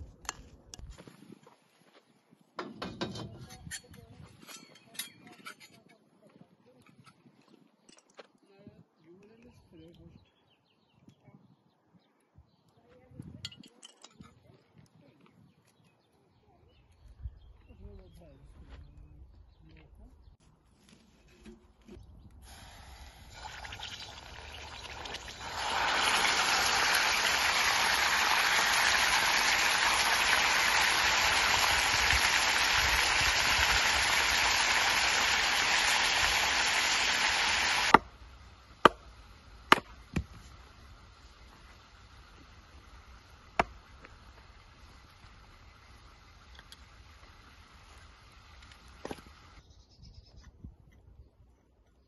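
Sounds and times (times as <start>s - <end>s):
duck sizzling in hot fat: 22.5s - 38.0s, 40.4s - 49.6s
axe splitting wood: 37.9s - 38.2s, 38.8s - 40.5s, 43.6s - 43.8s.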